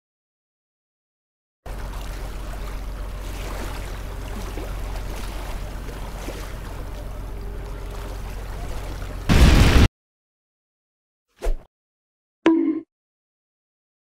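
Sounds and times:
water washing: 1.7s - 9.9s.

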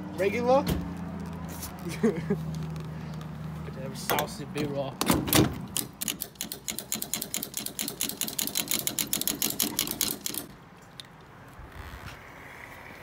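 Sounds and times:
fuel cap ratchet clicking: 5.7s - 11.2s.

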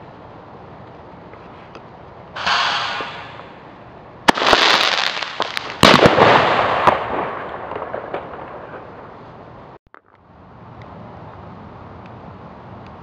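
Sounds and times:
fireworks banging: 2.4s - 9.2s
fireworks crackling: 2.4s - 10.1s.

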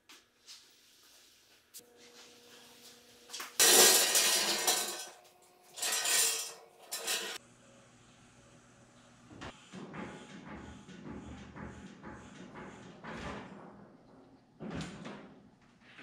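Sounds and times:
metal frame clanking: 3.6s - 7.4s.

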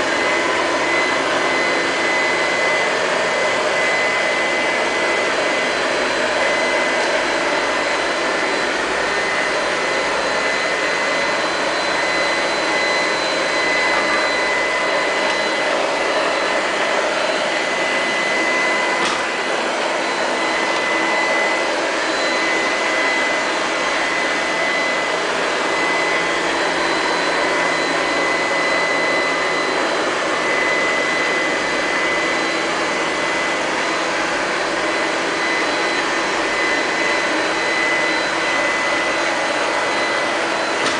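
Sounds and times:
robot vacuum motor whine: 0.0s - 40.9s.

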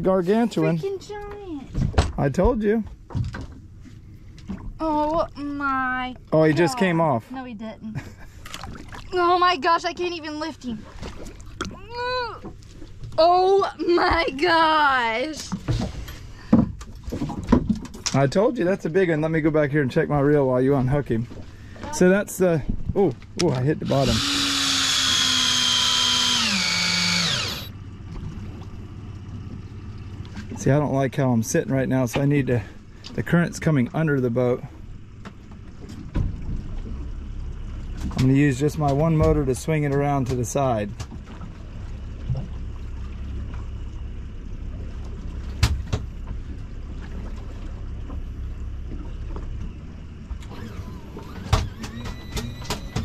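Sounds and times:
outboard motor running: 0.0s - 53.0s
fishing reel motor whining: 23.8s - 27.8s, 50.4s - 53.0s.

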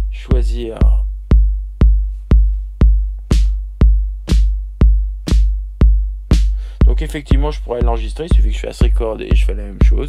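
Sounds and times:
deep compressed kick drum: 0.0s - 10.0s
snare drum hits: 5.3s - 5.5s.

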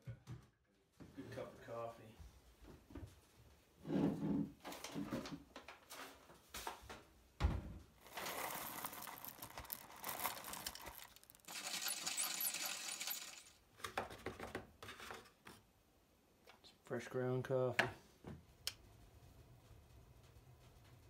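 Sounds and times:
coffee beans crunching in grinder: 8.0s - 13.6s
coffee beans rattling into hopper: 8.0s - 13.6s.

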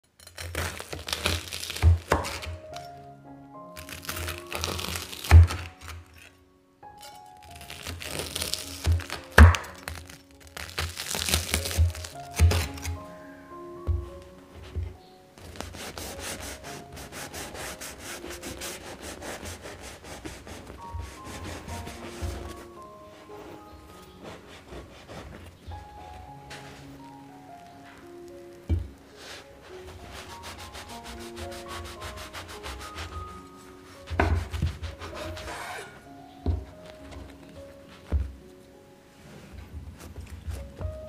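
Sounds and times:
knife cutting crusty bread: 0.1s - 2.9s, 3.8s - 6.3s, 7.0s - 13.0s, 15.4s - 26.9s, 27.8s - 38.2s, 40.0s - 41.0s
knife sawing through bread crust: 15.4s - 22.7s, 24.2s - 25.5s, 29.2s - 36.0s.

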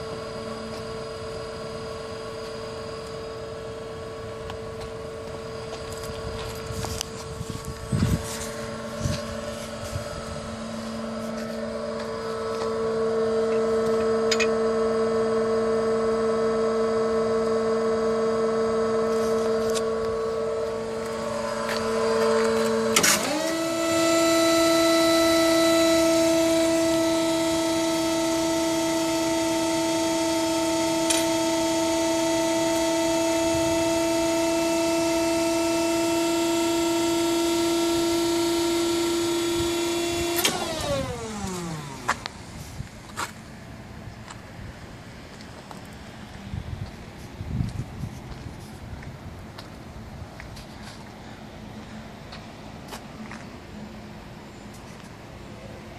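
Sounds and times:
hydraulic pump whining: 0.0s - 46.4s.

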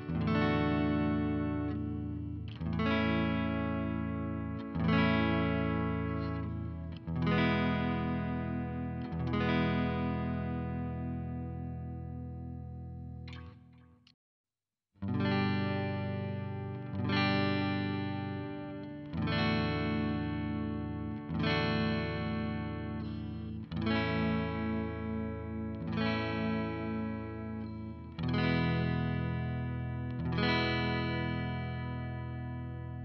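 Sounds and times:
electric guitar chords ringing: 0.0s - 13.7s, 15.0s - 33.0s.

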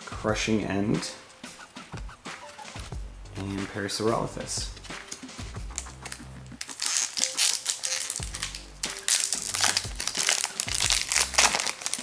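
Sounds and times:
quiet background music: 0.0s - 12.0s
foil wrapper crinkling: 5.7s - 12.0s.

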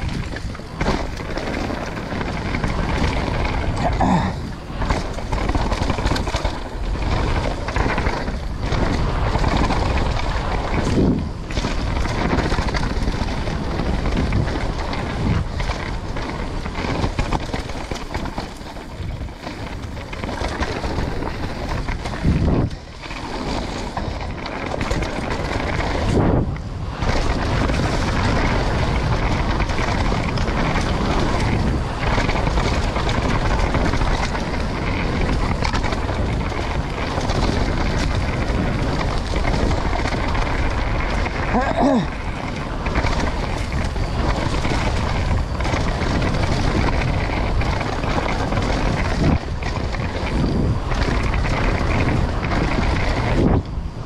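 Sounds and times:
bike tyres on dirt trail: 0.0s - 54.0s
wind buffeting microphone: 0.0s - 54.0s.

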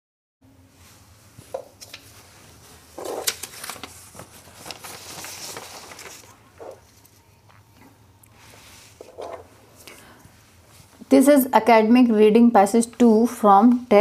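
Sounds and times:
faint steady hum: 0.4s - 14.0s
book and papers rustling: 0.8s - 11.1s.

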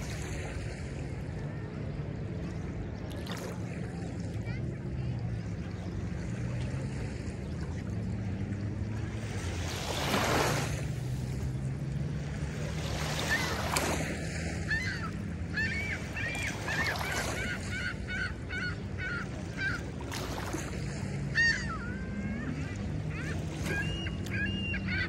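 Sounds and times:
low steady hum: 0.0s - 9.9s
small waves lapping on sand: 0.0s - 25.0s
gulls calling: 9.4s - 25.0s.

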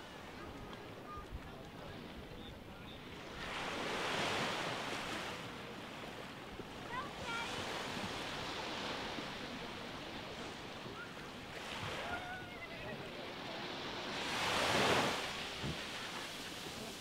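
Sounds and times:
small waves breaking on sand: 0.0s - 17.0s.

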